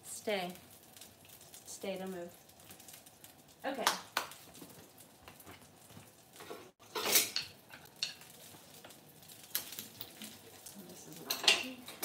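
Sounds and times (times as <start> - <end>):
cookware clattering and scraping: 6.4 - 9.0, 11.1 - 12.0.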